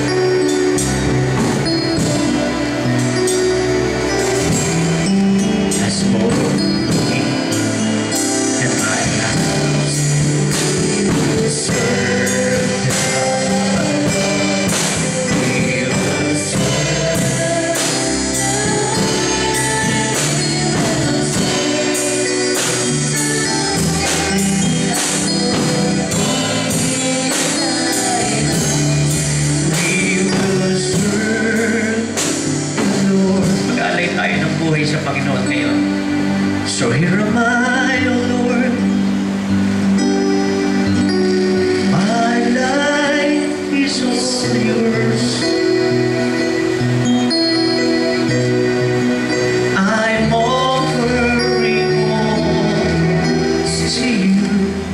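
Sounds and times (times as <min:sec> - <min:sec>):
instrumental accompaniment with beat: 0:00.0 - 0:54.9
man singing into a microphone: 0:05.4 - 0:07.6, 0:08.5 - 0:39.3, 0:41.8 - 0:46.5, 0:49.3 - 0:54.9.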